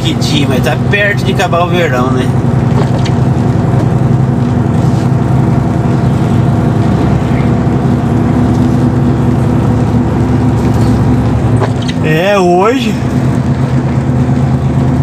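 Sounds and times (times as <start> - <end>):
vehicle engine running: 0.0 - 15.0.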